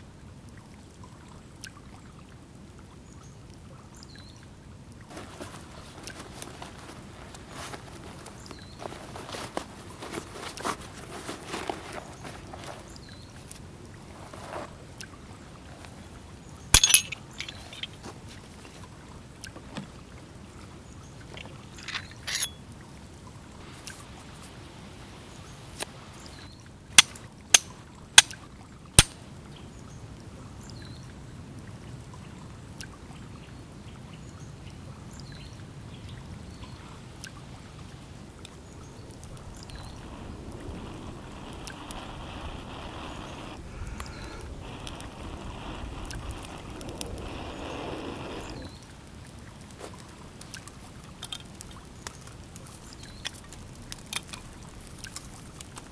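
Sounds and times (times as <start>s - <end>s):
handling clatter: 5.1s - 12.9s, 16.7s - 18.1s, 21.8s - 22.6s
fire steel striking flint: 16.7s - 18.0s, 21.8s - 22.6s, 27.0s - 28.4s, 29.0s - 29.2s.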